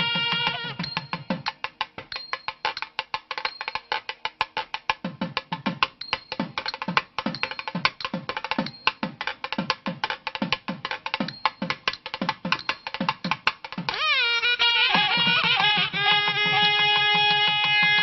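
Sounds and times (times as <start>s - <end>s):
clicking percussion: 0.0s - 18.0s
deep drum beats: 5.0s - 18.0s.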